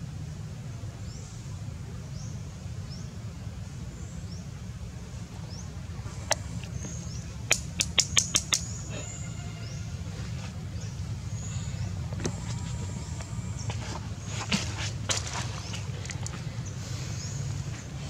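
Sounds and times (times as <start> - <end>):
steady low rumble: 0.0 - 18.0
bird chirps: 6.2 - 9.9
sharp clicks: 7.5 - 8.7.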